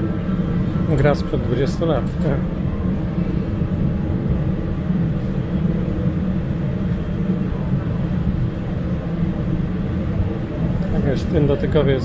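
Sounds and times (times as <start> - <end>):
aircraft cabin rumble and hum: 0.0 - 12.0.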